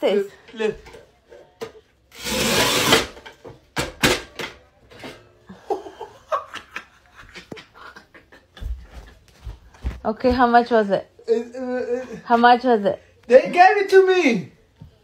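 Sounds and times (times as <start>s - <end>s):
tile cutter scraping tile: 2.1s - 3.3s
man laughing: 5.5s - 9.2s, 11.2s - 12.3s.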